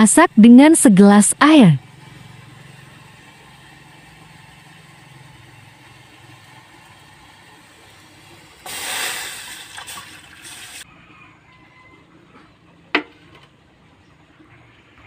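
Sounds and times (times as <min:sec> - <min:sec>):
water pouring into metal pot: 0:02.7 - 0:10.8.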